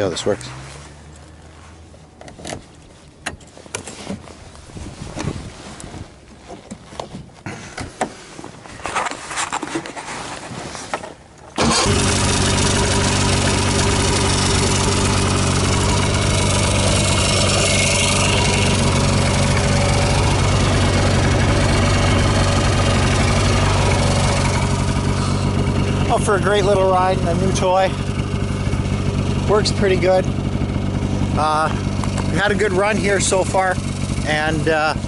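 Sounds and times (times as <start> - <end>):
snowmobile engine idling: 11.6 - 35.0.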